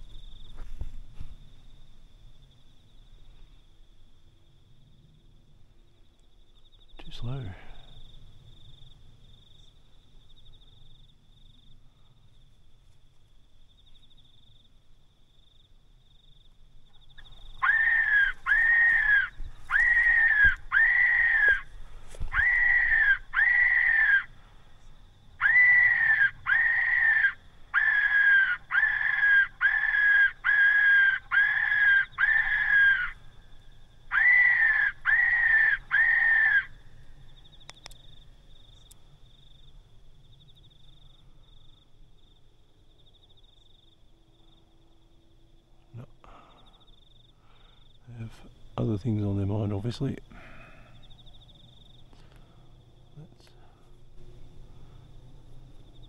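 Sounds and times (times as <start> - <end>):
shrill squealing cry: 17.6 - 21.6, 25.4 - 33.1.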